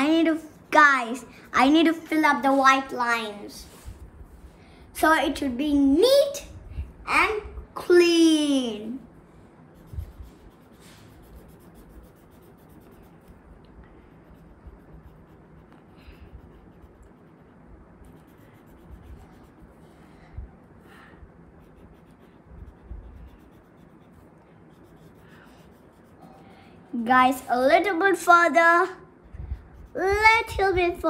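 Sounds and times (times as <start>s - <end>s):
colouring tool rubbing on paper: 9.8s - 13.4s, 14.0s - 20.0s, 21.5s - 27.2s.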